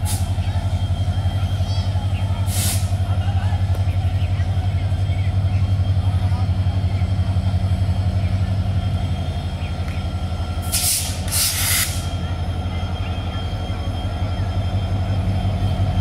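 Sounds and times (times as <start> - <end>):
diesel locomotive idling: 0.0 - 16.0
air hisses: 10.7 - 12.1.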